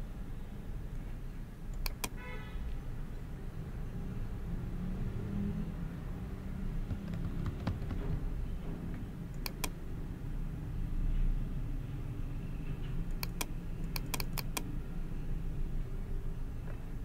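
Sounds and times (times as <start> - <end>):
computer mouse clicks: 1.7 - 2.2, 9.3 - 9.8, 13.1 - 14.7
low background rumble: 6.0 - 10.3.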